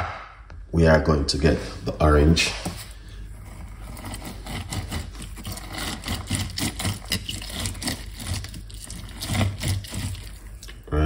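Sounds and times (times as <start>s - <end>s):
orange squelching on citrus reamer: 3.3s - 10.9s.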